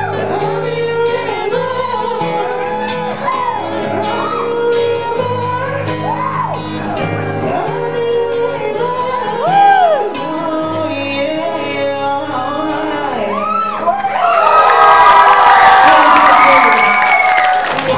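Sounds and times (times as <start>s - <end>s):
strummed acoustic guitar: 0.0s - 13.4s
man singing: 0.0s - 13.9s.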